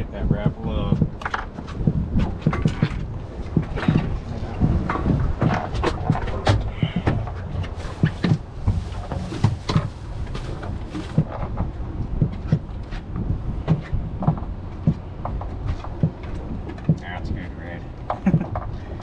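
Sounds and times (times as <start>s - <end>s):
low rumble: 0.0s - 19.0s.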